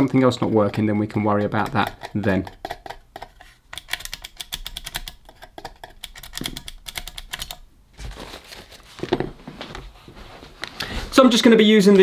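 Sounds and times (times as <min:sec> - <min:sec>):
small hard objects clicking: 0:00.0 - 0:07.6.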